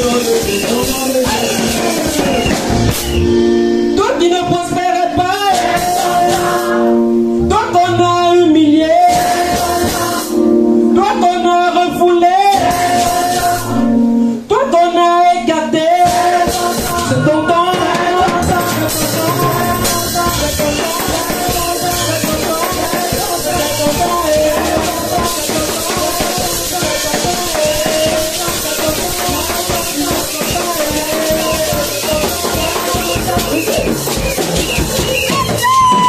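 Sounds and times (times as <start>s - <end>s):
man singing into a microphone: 0.0s - 3.0s, 4.0s - 36.0s
drum beat: 0.0s - 3.4s, 4.2s - 6.8s, 9.0s - 10.3s, 16.0s - 36.0s
shaker: 18.4s - 36.0s.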